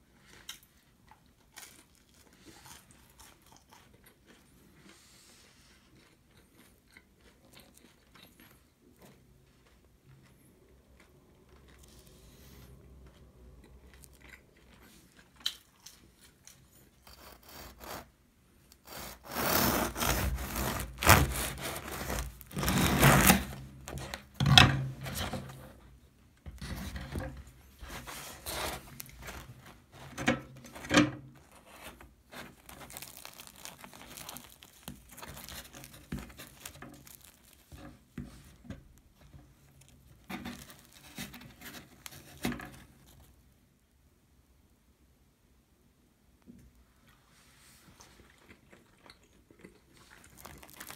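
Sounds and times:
bread crust crackling and crunching: 0:00.2 - 0:05.0, 0:18.7 - 0:24.4, 0:27.7 - 0:43.2, 0:48.1 - 0:50.9
soft crackles of bread torn by hand: 0:32.3 - 0:37.9, 0:50.0 - 0:50.9.

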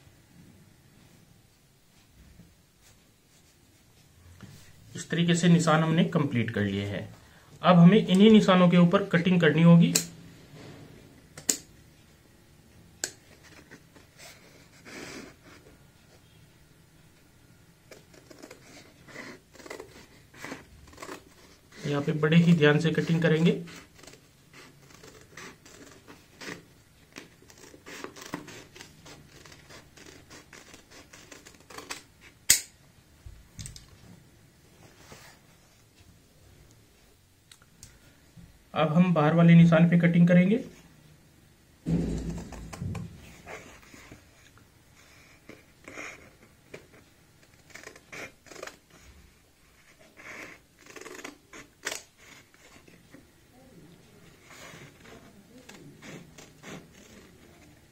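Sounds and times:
scissors snipping stiff fabric: 0:17.9 - 0:21.6.

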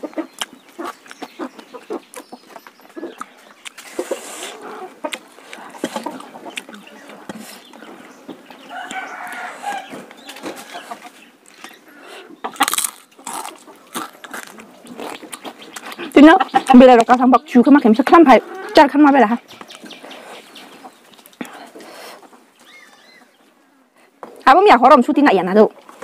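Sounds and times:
chickens clucking: 0:00.0 - 0:24.4
wet clicks of eating: 0:00.1 - 0:04.1, 0:05.0 - 0:07.9
rooster crowing: 0:08.6 - 0:10.8
crunchy bite: 0:12.5 - 0:16.0.

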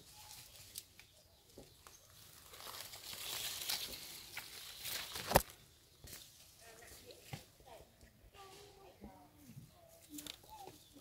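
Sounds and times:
leaves and twigs rustling: 0:00.0 - 0:11.0
twig snapping: 0:01.8 - 0:06.2.

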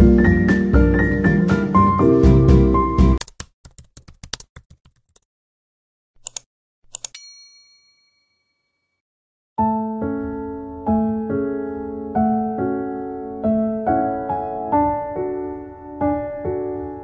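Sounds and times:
background music: 0:00.0 - 0:03.2
computer keyboard typing: 0:03.2 - 0:05.2, 0:06.2 - 0:07.2
mouse clicks: 0:06.2 - 0:07.2
notification bell ding: 0:07.2 - 0:08.8.

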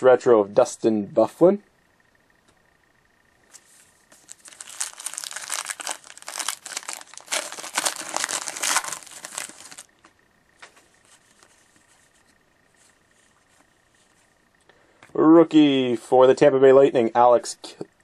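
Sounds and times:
wrapper tearing and crinkling: 0:04.2 - 0:09.9.

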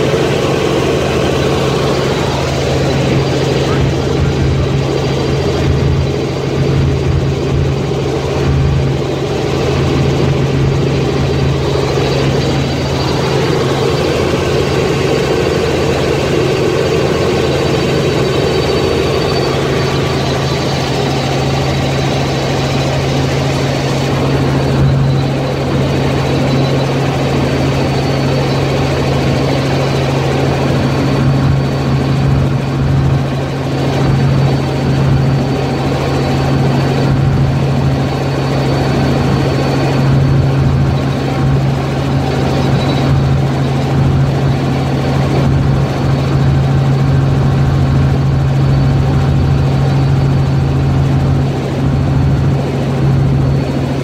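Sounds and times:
helicopter rotor and engine drone: 0:00.0 - 0:54.0.

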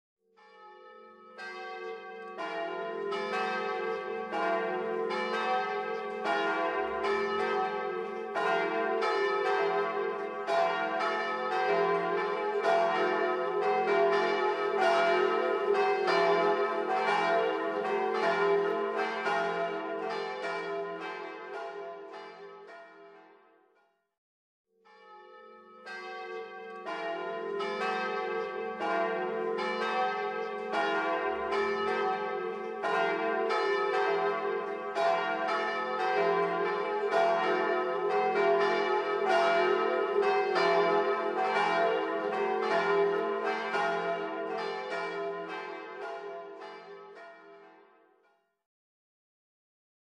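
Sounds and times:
church bells ringing: 0:00.4 - 0:23.5, 0:24.9 - 0:48.0.

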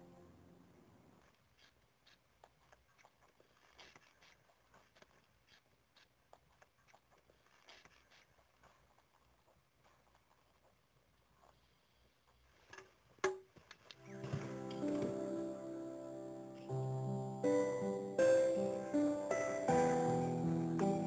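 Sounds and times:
music: 0:14.0 - 0:21.0.

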